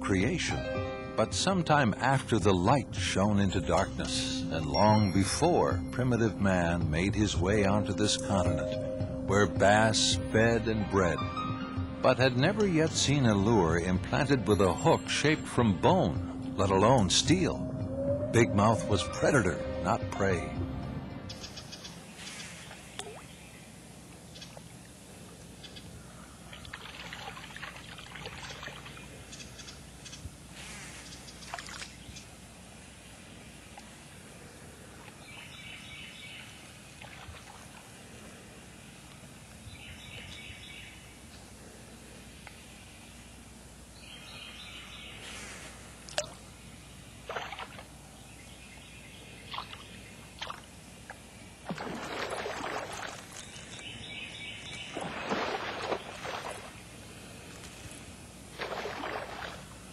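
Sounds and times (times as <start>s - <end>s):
faint steady low hum: 0.0s - 59.9s
water splashing and trickling: 21.4s - 23.4s, 26.3s - 29.5s, 30.9s - 32.2s, 36.5s - 38.4s, 47.2s - 48.0s, 49.5s - 54.0s, 54.6s - 57.0s, 57.7s - 59.9s.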